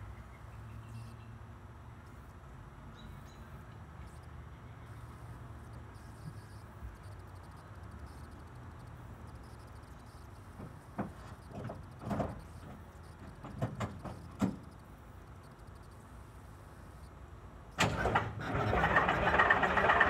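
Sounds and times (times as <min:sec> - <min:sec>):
diesel engine cranking and starting: 0:17.8 - 0:20.0.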